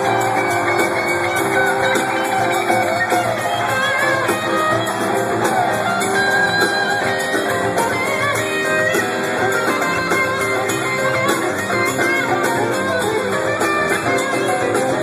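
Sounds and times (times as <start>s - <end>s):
electric guitar bending notes: 0.0s - 15.0s
rock band playing live: 0.0s - 15.0s.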